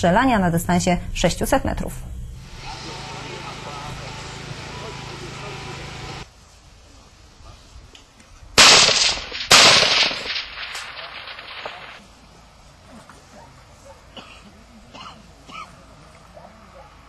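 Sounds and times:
rifle shots with rolling echo: 0:08.6 - 0:12.0.

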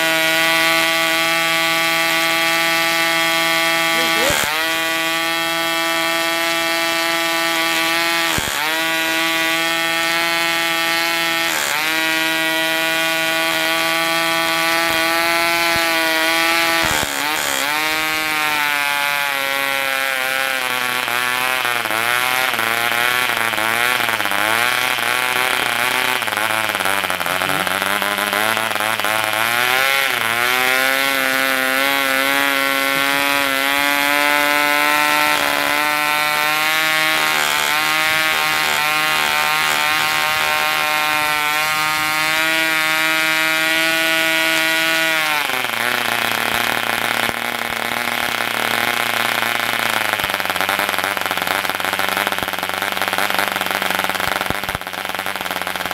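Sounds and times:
model diesel engine buzzing: 0:00.0 - 0:55.9
engine knocking: 0:19.3 - 0:55.9.

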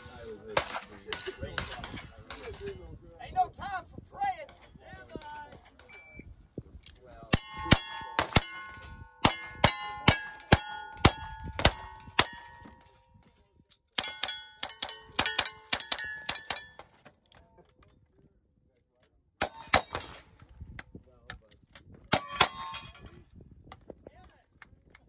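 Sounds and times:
gunshots: 0:00.5 - 0:02.7, 0:07.4 - 0:12.7
steel target ringing: 0:07.4 - 0:12.8, 0:14.0 - 0:16.9.

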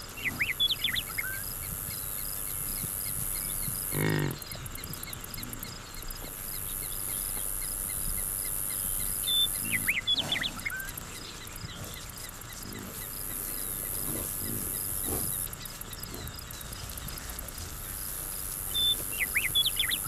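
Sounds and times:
bison grunts: 0:03.9 - 0:04.7, 0:09.6 - 0:10.9, 0:12.6 - 0:15.4.

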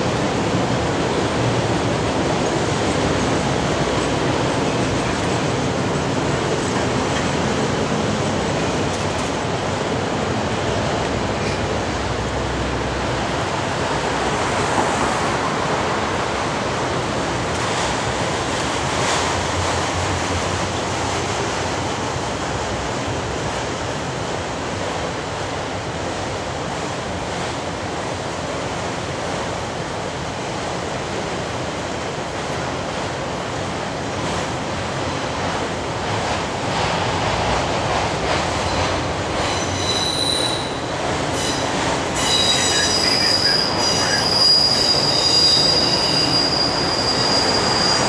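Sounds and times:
train wheels rushing on rail: 0:00.0 - 0:48.0.

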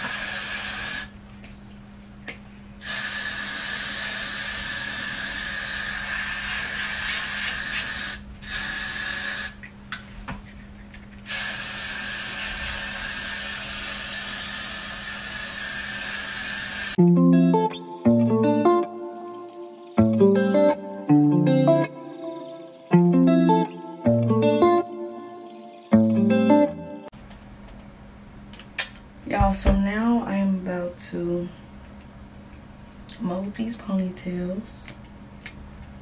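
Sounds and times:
aerosol can spraying: 0:00.0 - 0:01.1, 0:02.8 - 0:09.6, 0:11.3 - 0:17.0
guitar music: 0:17.0 - 0:27.1.

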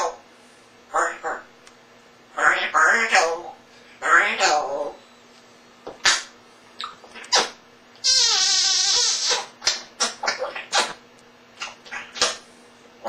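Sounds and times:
parrot calling: 0:00.9 - 0:01.5, 0:02.4 - 0:05.0, 0:06.0 - 0:11.0, 0:11.6 - 0:12.4.

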